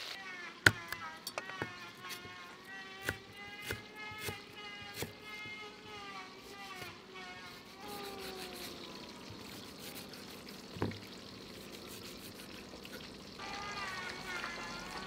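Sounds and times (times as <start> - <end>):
cleaver chopping on wooden block: 0.7 - 2.3, 3.0 - 5.2
knife slicing: 1.6 - 2.3, 2.9 - 5.5, 6.4 - 8.9, 9.5 - 13.1.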